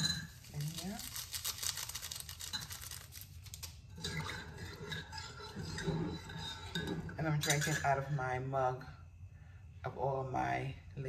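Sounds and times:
metal spoon clinking in mug: 0.0s - 0.4s, 4.0s - 7.9s
sweetener packets rustling: 0.3s - 3.9s.

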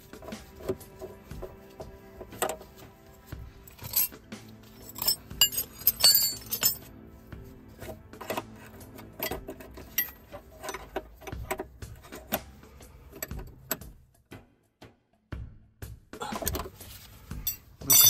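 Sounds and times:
spanner clicking on metal: 8.1s - 12.5s, 13.1s - 13.9s.

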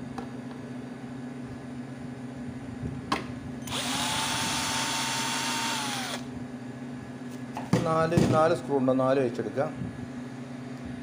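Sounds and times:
electric screwdriver motor whine: 3.6s - 6.3s.

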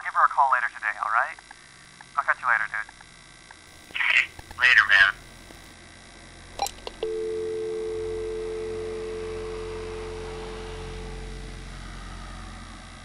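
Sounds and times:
telephone line click: 6.6s - 10.2s
two-tone dial tone: 6.6s - 11.4s.

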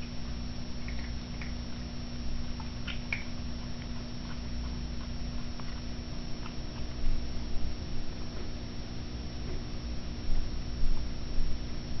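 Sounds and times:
kitten chewing: 0.0s - 11.7s
small clicks and ticks: 0.8s - 7.2s.

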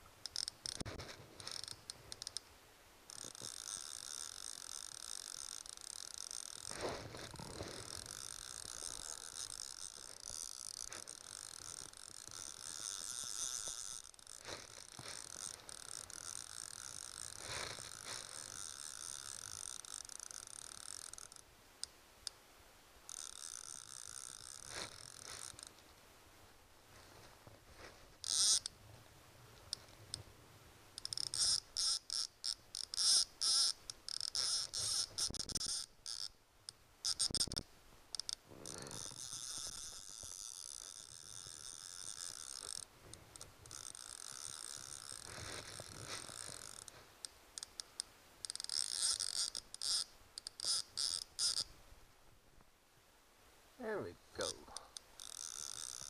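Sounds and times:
fly reel ratchet buzzing: 0.2s - 0.8s, 3.1s - 6.8s, 7.7s - 21.4s, 23.1s - 25.7s, 28.2s - 28.7s, 31.0s - 36.3s, 37.0s - 42.9s, 43.6s - 45.4s, 46.2s - 46.9s, 48.4s - 51.7s, 55.2s - 56.0s.

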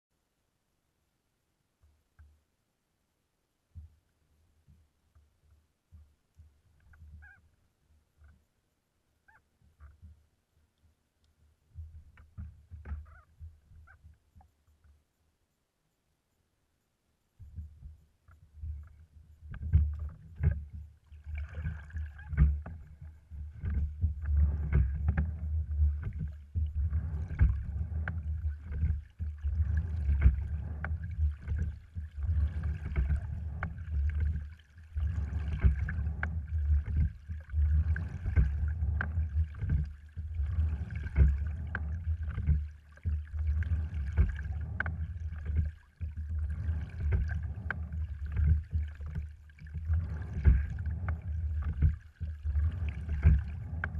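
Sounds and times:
water rumbling under hull: 5.9s - 7.6s, 11.4s - 14.6s, 17.4s - 53.9s.

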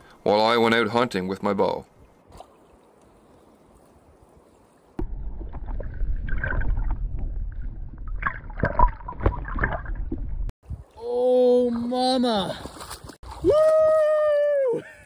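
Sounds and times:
water gurgling and sloshing: 1.8s - 11.0s, 12.6s - 13.4s
muffled underwater rumble: 5.0s - 10.5s.

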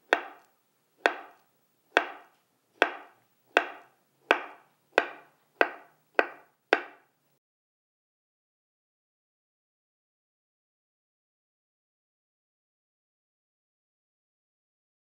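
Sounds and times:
knife slicing avocado: 0.1s - 7.1s
knife tapping wooden cutting board: 0.1s - 7.1s.

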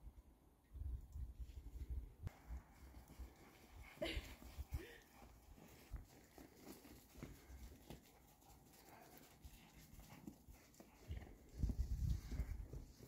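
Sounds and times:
horses moving in snow: 1.4s - 13.0s.

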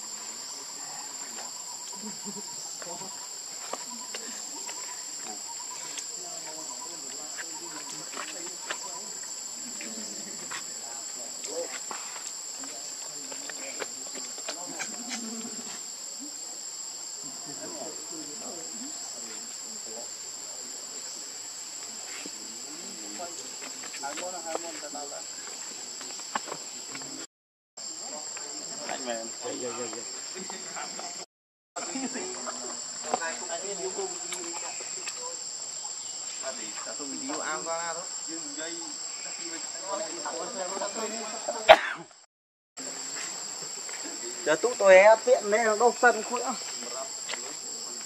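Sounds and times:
insect chorus droning: 0.0s - 48.0s.

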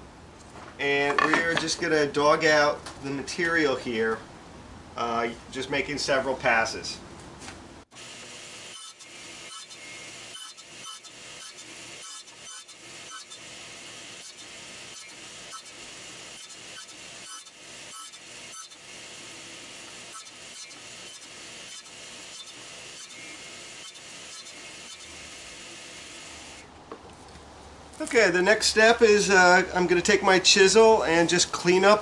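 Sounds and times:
table saw cutting wood: 7.9s - 26.6s.

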